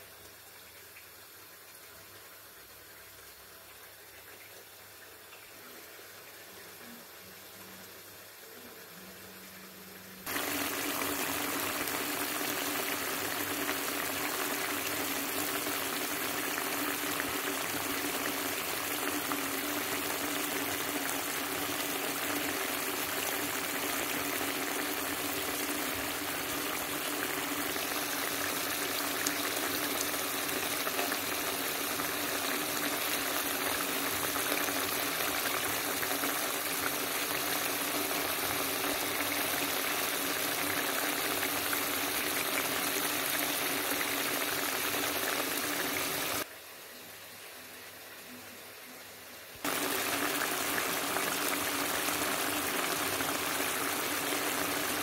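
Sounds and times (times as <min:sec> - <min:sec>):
curry bubbling in a frying pan: 0:10.2 - 0:46.5, 0:49.6 - 0:55.0.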